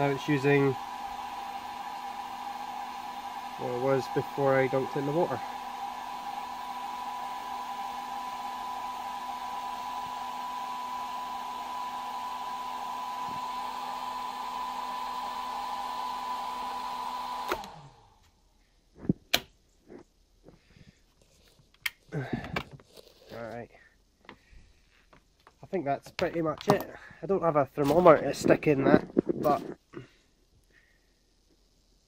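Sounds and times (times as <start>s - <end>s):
hair dryer running: 0.0s - 18.2s.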